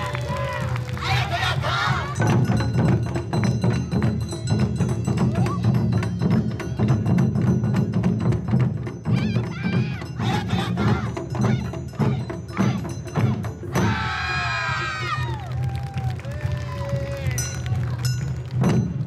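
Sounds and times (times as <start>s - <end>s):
taiko drums in dance music: 0.0s - 19.0s
clinking metal percussion: 1.9s - 14.8s, 17.1s - 19.0s.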